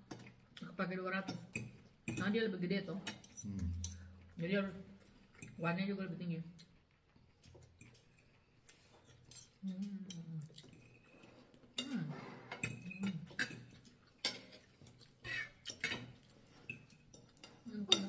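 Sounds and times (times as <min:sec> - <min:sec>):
person humming low: 0:03.5 - 0:03.8
cutlery scraping on ceramic plates: 0:07.8 - 0:18.0.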